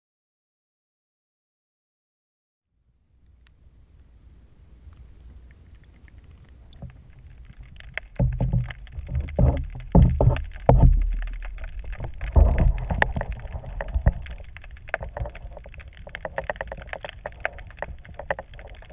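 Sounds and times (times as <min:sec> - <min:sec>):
faint low rumble: 0:02.7 - 0:18.9
splashes and low thumps: 0:06.7 - 0:18.9
water slapping against kayak hull: 0:07.5 - 0:18.9.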